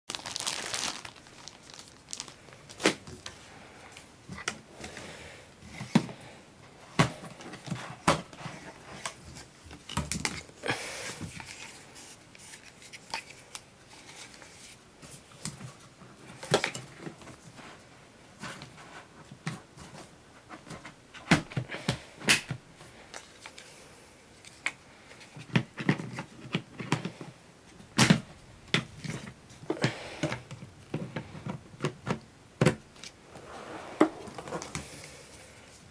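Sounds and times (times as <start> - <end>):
paper rustling: 0.1 - 3.4.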